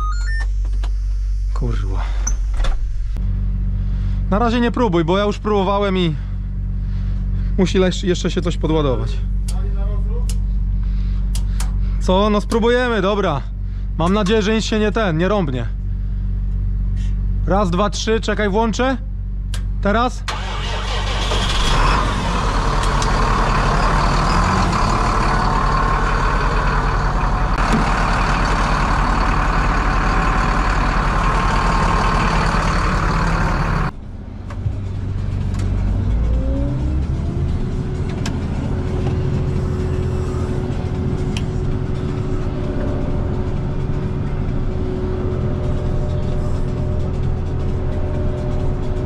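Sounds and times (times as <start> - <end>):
diesel tractor engine running: 0.0 - 18.5, 19.1 - 49.0
rising whine: 21.2 - 49.0.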